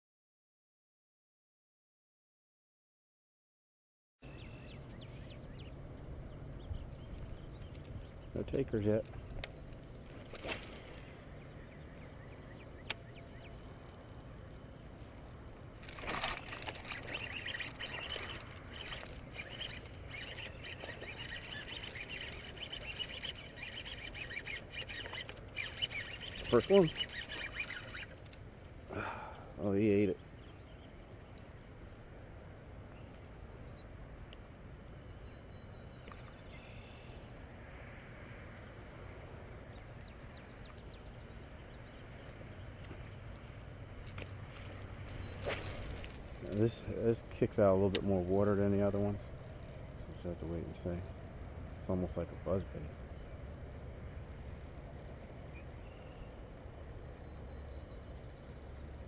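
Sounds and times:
birds chirping: 0:04.2 - 0:31.7, 0:34.9 - 0:37.4, 0:38.8 - 0:53.6
high chirps: 0:16.4 - 0:28.3.

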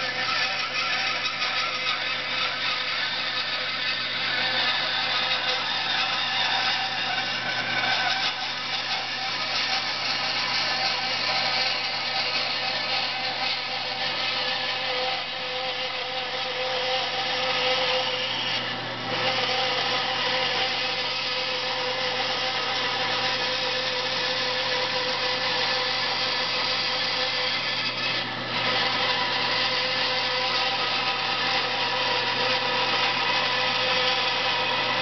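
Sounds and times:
bandsaw cutting wood: 0:00.0 - 0:35.0.

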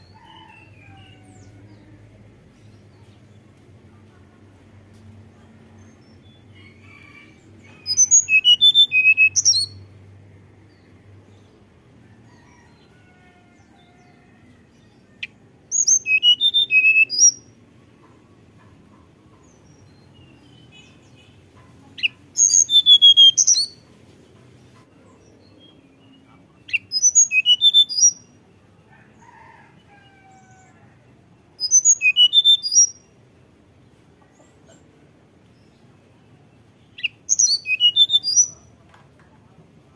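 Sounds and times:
bird singing flute-like notes: 0:07.8 - 0:09.8, 0:15.2 - 0:17.4, 0:22.0 - 0:23.8, 0:26.7 - 0:28.3, 0:31.6 - 0:33.0, 0:36.9 - 0:38.6.

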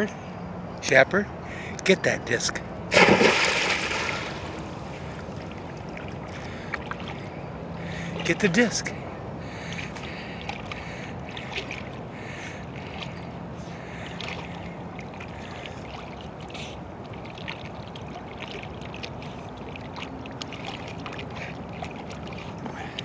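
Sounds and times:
dog splashing in water: 0:02.9 - 0:04.9.

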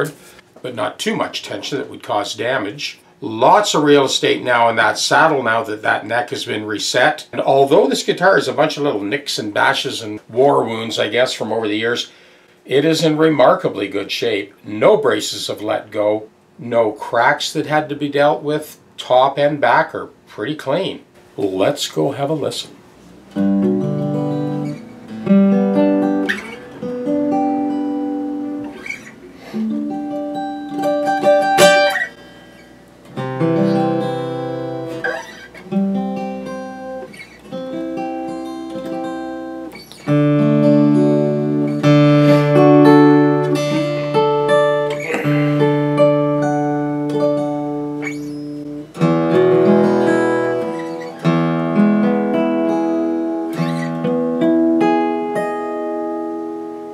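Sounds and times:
acoustic guitar playing: 0:23.0 - 0:56.9.

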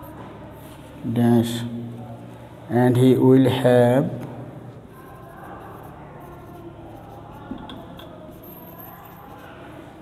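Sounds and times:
marker writing on whiteboard: 0:04.8 - 0:10.0.

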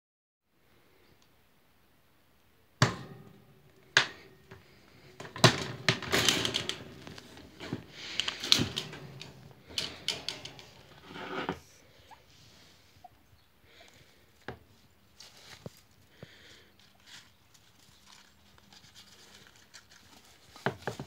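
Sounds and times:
wire cage knocking and rattling: 0:02.8 - 0:11.6.

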